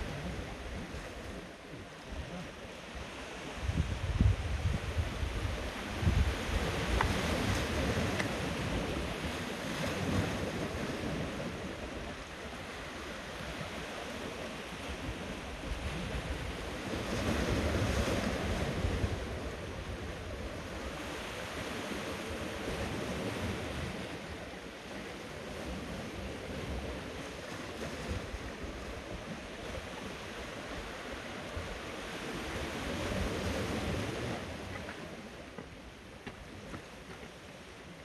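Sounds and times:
wind buffeting microphone: 0.0s - 24.4s
surf washing over rocks: 0.0s - 38.0s.

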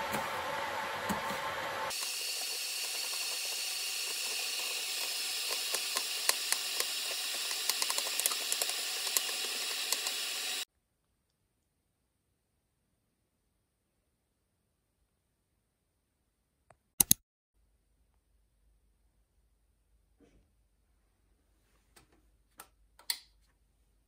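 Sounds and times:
steady hiss: 1.4s - 10.6s.

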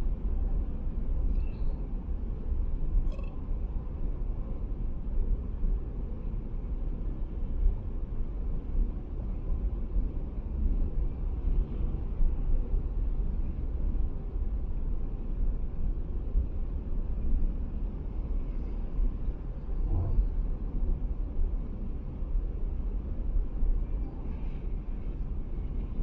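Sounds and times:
tyres rumbling on road: 17.6s - 26.0s.

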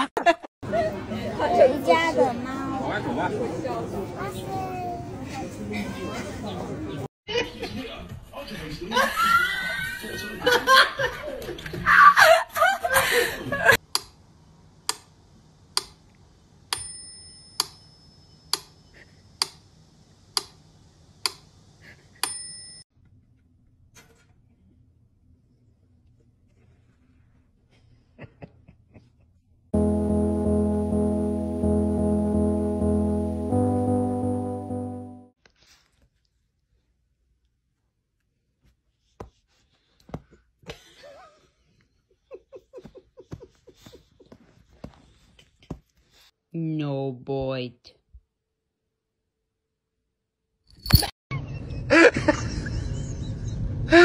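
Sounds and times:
high ringing tone: 29.8s - 35.3s.

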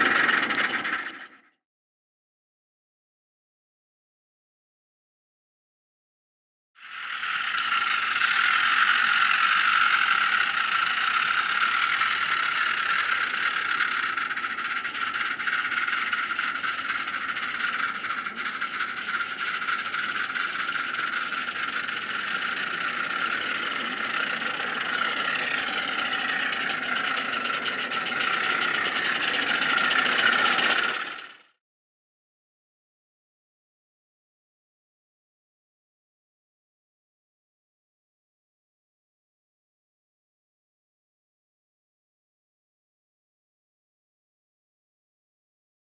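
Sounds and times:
fast rattle of exhaust beats: 0.0s - 1.4s, 6.8s - 31.6s.

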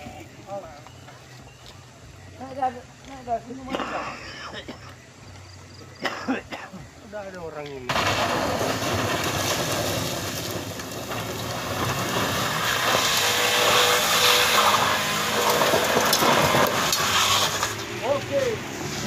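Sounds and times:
road rushing noise: 7.8s - 19.0s
vehicle engine: 7.8s - 19.0s.

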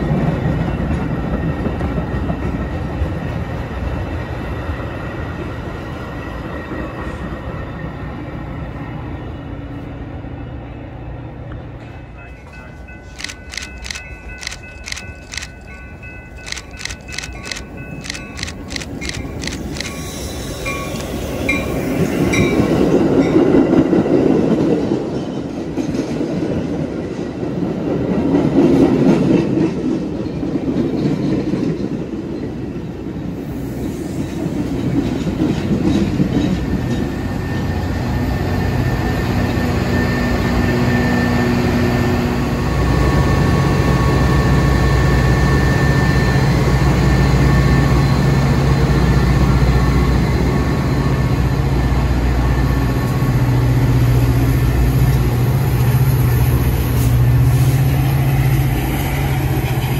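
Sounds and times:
diesel locomotive engine humming: 0.0s - 59.9s.

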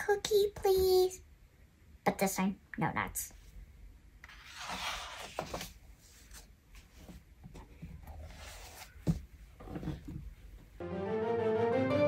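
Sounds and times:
book pages turning: 4.2s - 7.2s, 8.1s - 9.2s.

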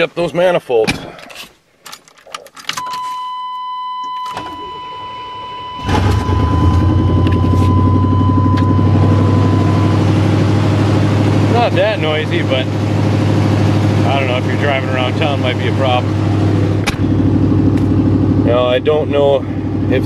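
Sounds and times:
electronic warning tone: 2.8s - 10.7s
engine cranking and idling: 4.1s - 20.0s.

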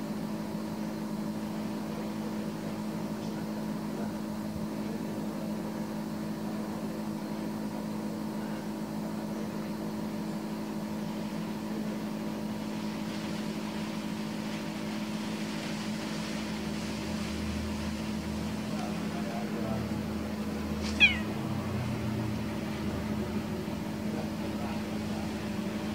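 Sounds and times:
steady machine hum: 0.0s - 25.9s
hiss: 10.4s - 25.9s.

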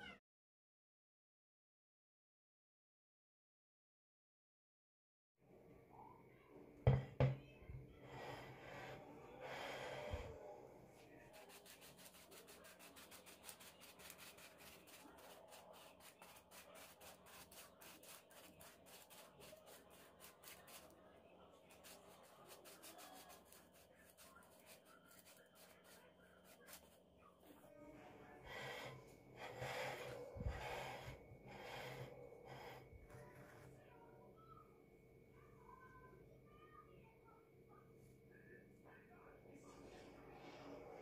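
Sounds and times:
sugar sifting tapping and rustle: 11.3s - 21.0s, 21.6s - 27.0s.

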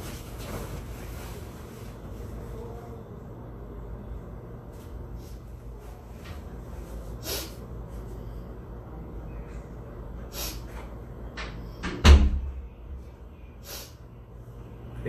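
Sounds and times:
low steady hum: 0.0s - 15.0s
short sniffs: 7.2s - 7.6s, 10.3s - 10.8s, 13.6s - 14.0s.

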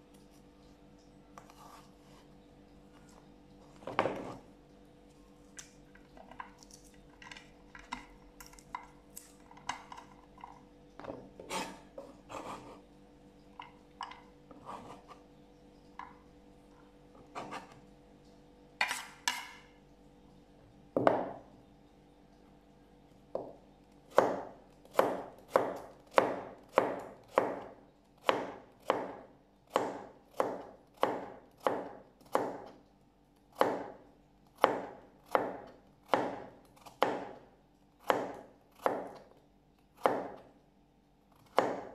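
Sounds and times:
knife chopping carrot on board: 24.1s - 32.7s, 34.6s - 37.4s, 38.0s - 39.2s, 41.4s - 41.9s.

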